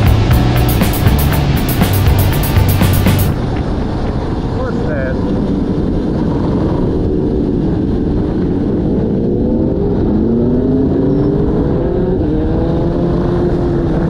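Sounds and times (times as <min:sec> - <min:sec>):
motorcycle engine accelerating: 0:00.0 - 0:04.1, 0:05.4 - 0:14.0
wind buffeting microphone: 0:03.2 - 0:14.0.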